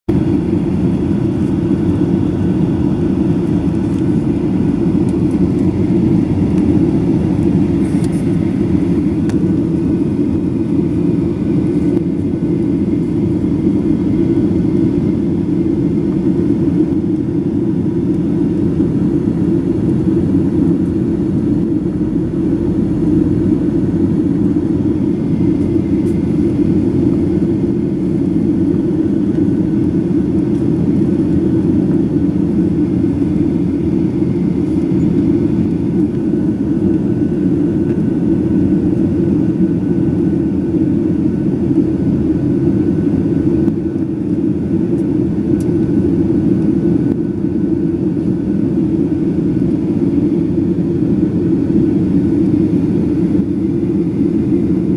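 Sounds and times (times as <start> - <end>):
jet engines rumbling: 0.1 - 54.9.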